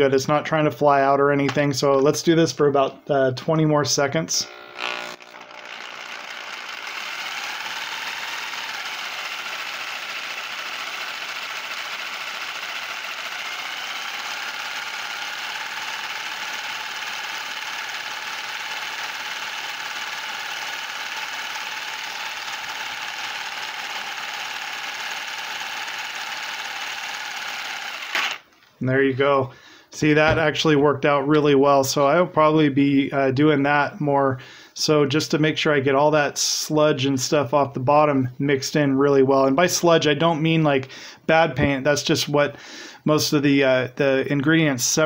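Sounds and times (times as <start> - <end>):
paint shaker motor buzzing: 4.3 - 28.5.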